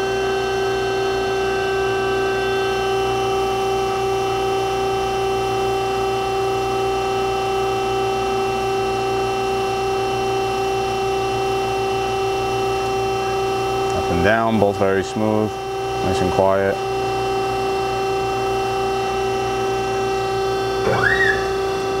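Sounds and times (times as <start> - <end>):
surface grinder humming and whining: 0.0 - 22.0.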